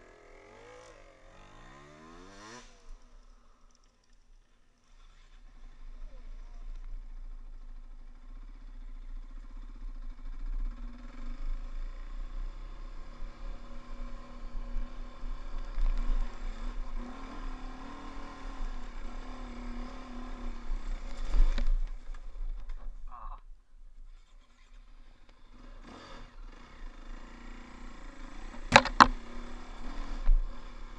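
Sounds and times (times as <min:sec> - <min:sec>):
dirt bike engine revving: 0:00.0 - 0:03.0, 0:10.2 - 0:22.0, 0:25.5 - 0:30.9.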